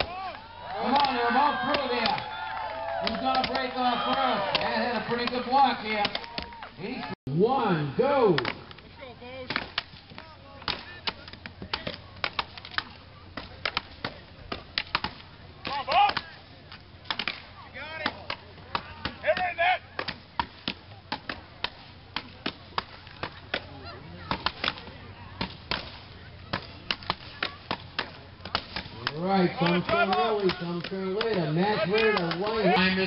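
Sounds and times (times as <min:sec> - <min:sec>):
axe chopping wood: 0:00.8 - 0:02.2, 0:03.0 - 0:06.5, 0:09.5 - 0:10.0, 0:10.6 - 0:16.3, 0:17.1 - 0:17.4, 0:18.0 - 0:32.6.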